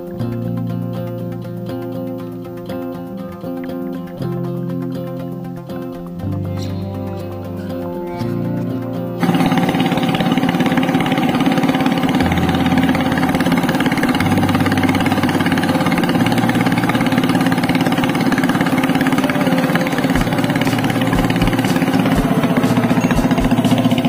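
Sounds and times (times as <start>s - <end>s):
boat engine running: 6.8s - 24.0s.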